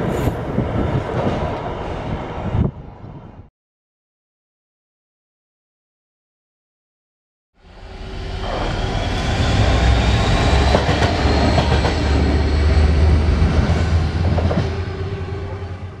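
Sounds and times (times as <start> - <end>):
diesel locomotive rumble: 7.7 - 16.0.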